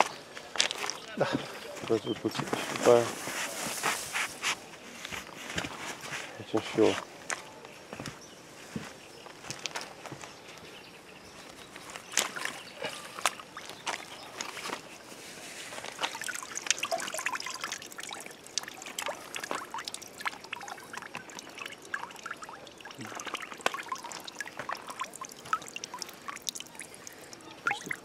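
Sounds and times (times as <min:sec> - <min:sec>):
water trickling and splashing: 0:11.2 - 0:28.0.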